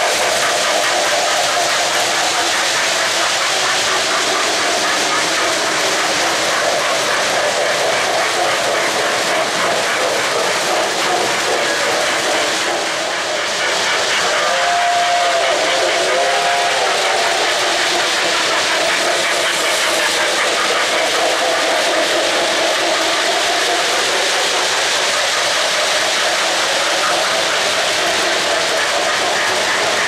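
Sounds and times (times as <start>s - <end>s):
toy train wheels rattling on rails: 0.0s - 30.0s
faint train whistle: 14.2s - 17.4s.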